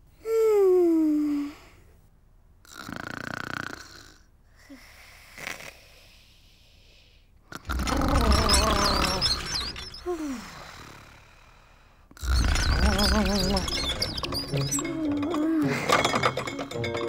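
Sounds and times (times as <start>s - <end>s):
cartoon snoring: 2.6s - 4.3s
breath out with small squeak: 7.6s - 11.1s, 12.2s - 14.9s.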